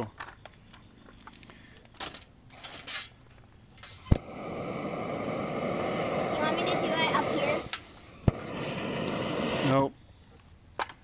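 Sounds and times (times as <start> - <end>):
torch igniter clicks: 3.7 - 11.0
torch flame hissing: 3.8 - 9.9.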